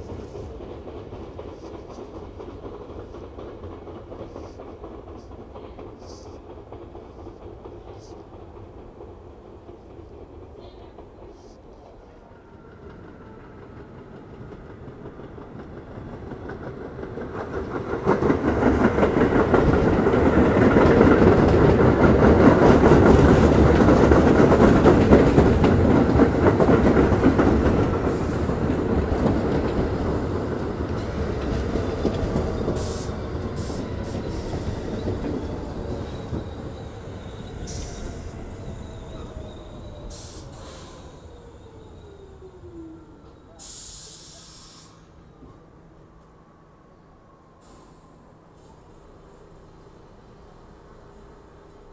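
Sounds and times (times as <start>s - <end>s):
subway train passing: 0.0s - 51.9s
train brakes whining: 27.7s - 45.7s, 47.5s - 51.9s.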